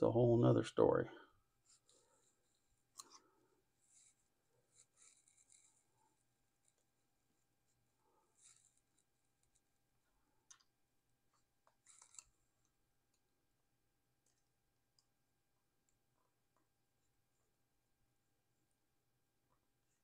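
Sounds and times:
faint metal clicks and scratches: 0:11.3 - 0:13.2.

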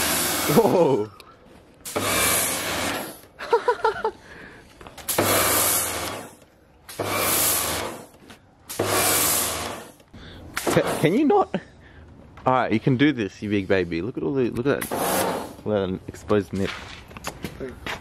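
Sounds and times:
pressure washer jet blasting concrete: 0:00.0 - 0:01.0, 0:01.8 - 0:03.2, 0:05.1 - 0:08.1, 0:08.7 - 0:10.0, 0:10.6 - 0:11.3, 0:14.8 - 0:15.6.

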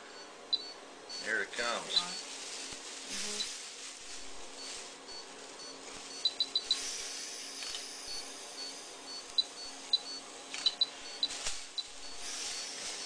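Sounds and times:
low steady hum: 0:00.0 - 0:13.0
faint regular pips: 0:01.8 - 0:07.0.

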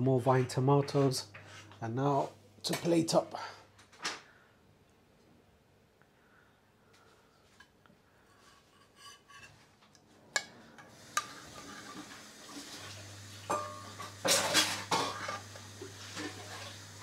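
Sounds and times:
metal spoon clinking on pot: 0:13.5 - 0:13.9.

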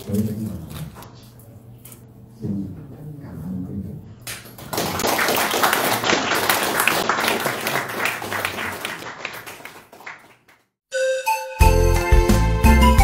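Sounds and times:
audience applauding: 0:04.6 - 0:10.7
music with steady tune: 0:10.9 - 0:13.0.

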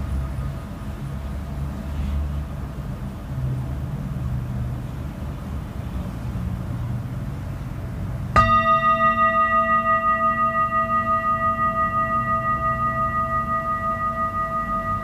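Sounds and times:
metal singing bowl ringing: 0:08.4 - 0:15.0.

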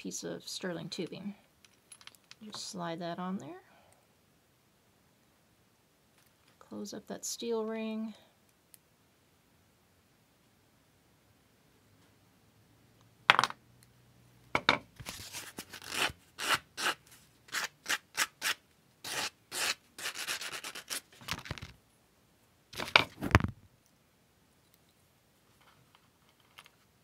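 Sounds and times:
sandpaper rubbing on steel ring: 0:15.2 - 0:21.2.

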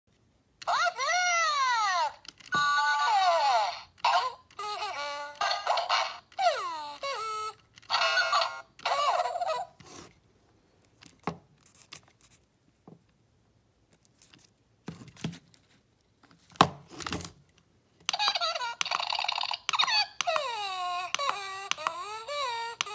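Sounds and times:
toy squeaky chirping sounds: 0:00.6 - 0:09.8, 0:18.1 - 0:22.9
plush toy rustling and clicks: 0:00.6 - 0:09.9, 0:13.9 - 0:22.9.

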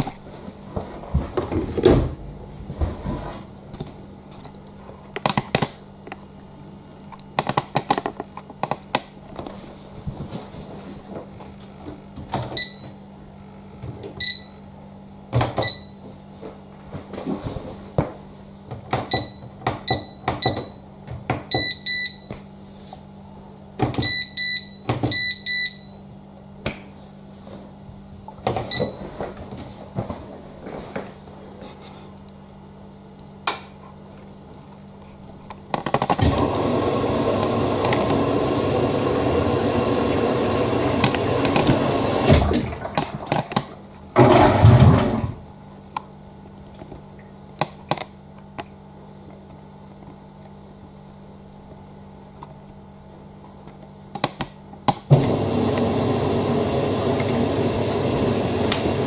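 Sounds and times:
water rushing into washing machine: 0:36.2 - 0:45.4, 0:55.1 - 0:59.0.

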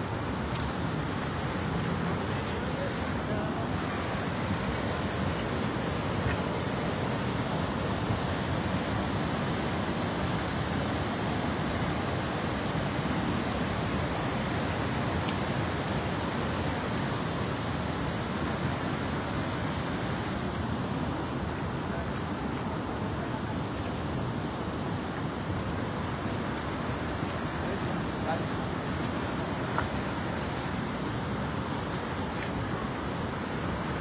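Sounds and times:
river rushing over rocks: 0:00.0 - 0:34.0.

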